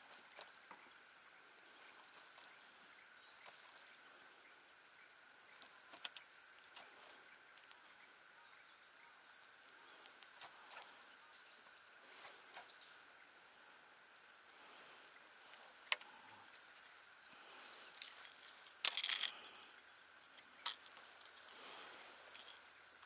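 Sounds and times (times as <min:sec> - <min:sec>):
faint clicks and ticks: 0:05.5 - 0:08.0.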